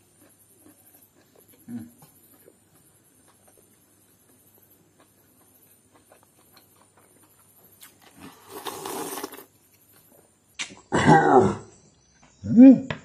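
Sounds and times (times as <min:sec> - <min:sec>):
man slurping broth: 0:08.2 - 0:09.5.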